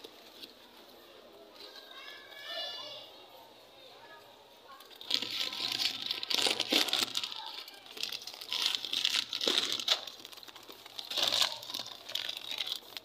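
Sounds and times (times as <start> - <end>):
plastic crinkling: 4.7 - 13.0.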